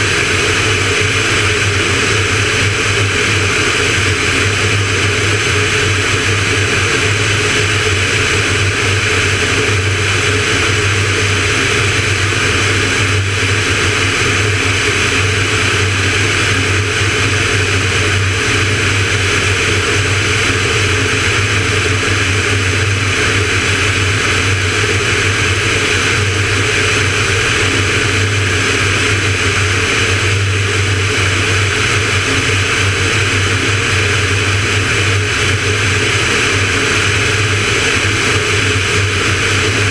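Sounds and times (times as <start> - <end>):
propeller plane engine drone: 0.0 - 39.9.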